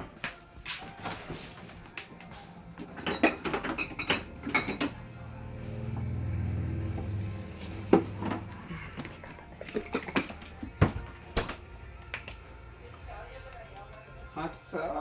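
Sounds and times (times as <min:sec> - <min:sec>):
bottles clinking and rattling: 0:02.8 - 0:05.0, 0:07.9 - 0:11.6
low steady hum: 0:03.8 - 0:13.7.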